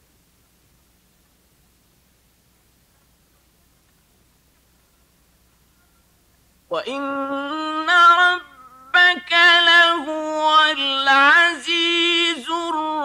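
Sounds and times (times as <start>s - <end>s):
man chanting melodically: 6.7s - 13.0s.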